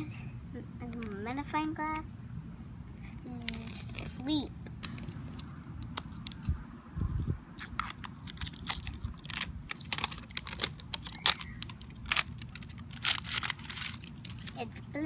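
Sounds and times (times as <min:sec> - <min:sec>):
plastic wrap crinkling and tearing: 0:07.6 - 0:14.6.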